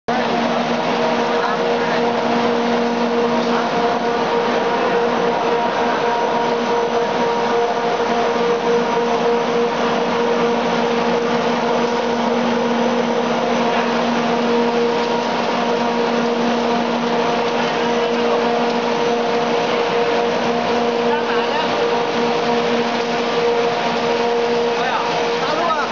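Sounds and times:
machinery droning: 0.1 - 25.9.

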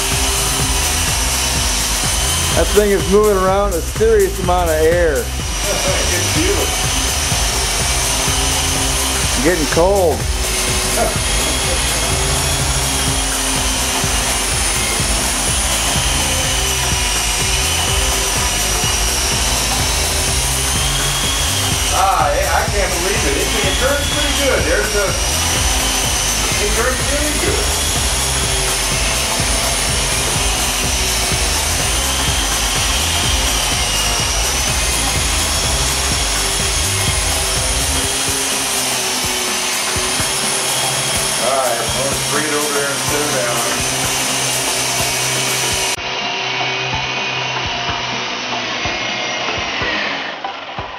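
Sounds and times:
rotor downwash rushing: 0.0 - 50.8
high-pitched electric motor whine: 0.0 - 50.9.

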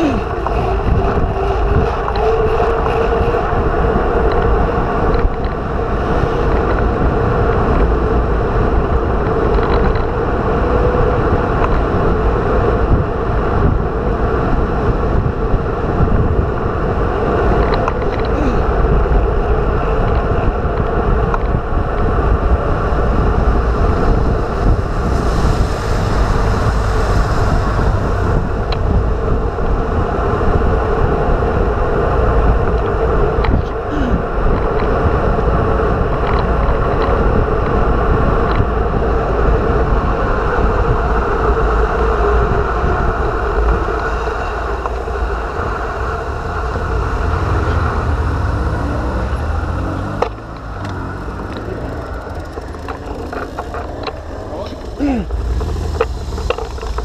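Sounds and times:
tyre noise on asphalt: 0.0 - 57.0
wind rushing over microphone: 0.0 - 57.0.

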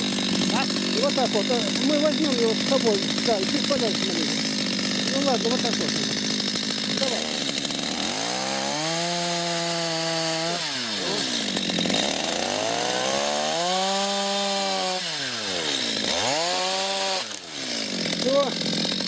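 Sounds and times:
chainsaw revving: 0.0 - 19.0.

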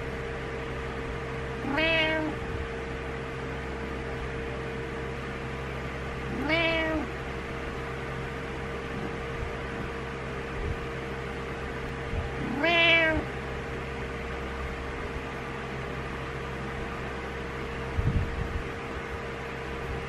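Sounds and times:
steady hum: 0.0 - 20.0
cat meowing: 1.6 - 2.5, 6.2 - 7.2, 9.0 - 9.2, 12.3 - 13.3.

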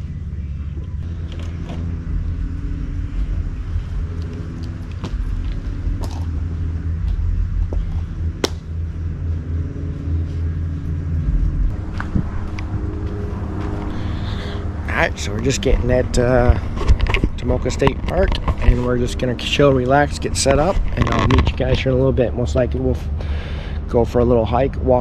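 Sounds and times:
road and engine rumble: 0.0 - 25.0
sharp clicks and rattles: 15.4 - 19.6, 20.2 - 22.0.

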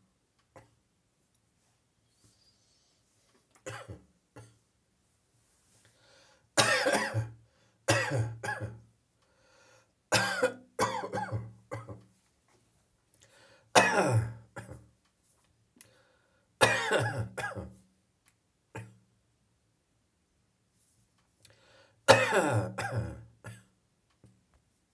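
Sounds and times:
person coughing: 3.6 - 4.6, 6.6 - 8.8, 10.1 - 12.0, 13.8 - 14.8, 16.6 - 17.8, 18.8 - 19.0, 22.1 - 23.7.

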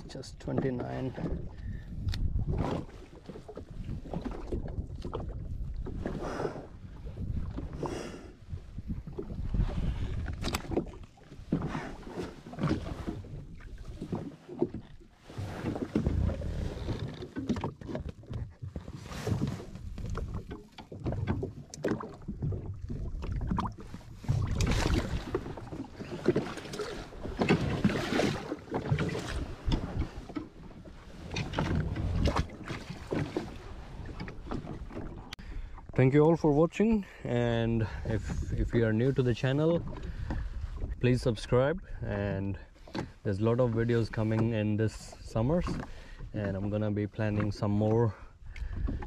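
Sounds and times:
wind gusts: 0.0 - 17.2
water splashing: 9.0 - 36.5.

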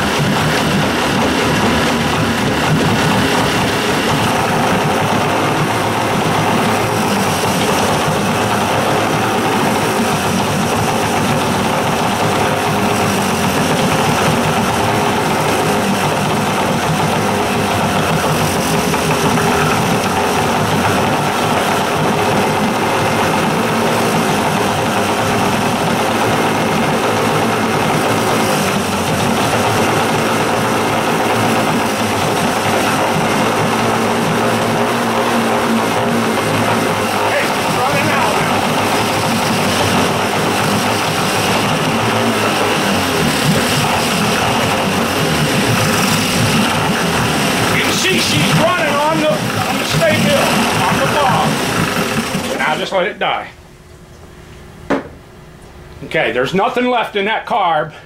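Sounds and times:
outboard motor running: 0.0 - 53.4.

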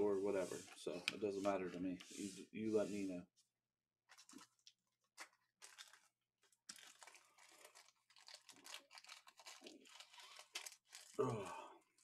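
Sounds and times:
packaging crinkling: 4.1 - 12.0.

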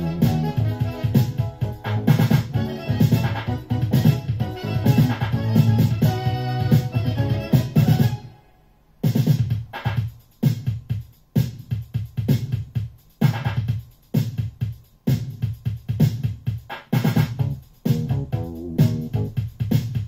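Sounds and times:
electro music with synth: 0.0 - 8.3, 15.1 - 20.0.

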